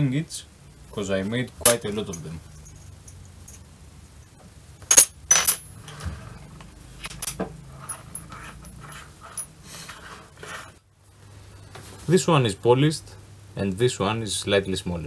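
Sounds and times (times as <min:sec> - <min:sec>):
metal wrenches clinking: 0:01.6 - 0:03.6, 0:04.9 - 0:05.7.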